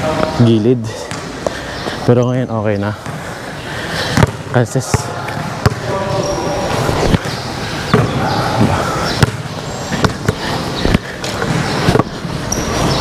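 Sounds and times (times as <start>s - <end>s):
basketball bouncing on court: 1.0s - 1.5s, 2.9s - 3.3s, 4.1s - 13.0s.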